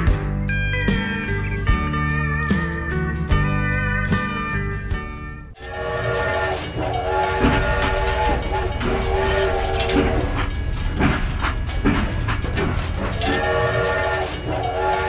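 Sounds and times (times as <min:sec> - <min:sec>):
steam whistle: 0:05.6 - 0:15.0
toy train running rumble: 0:05.6 - 0:15.0
clicks of toy train track: 0:06.0 - 0:15.0.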